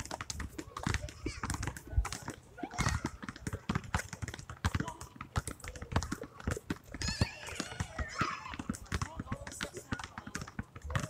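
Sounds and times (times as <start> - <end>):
basketballs bouncing on asphalt: 0.0 - 11.0
child crying out: 7.0 - 8.6.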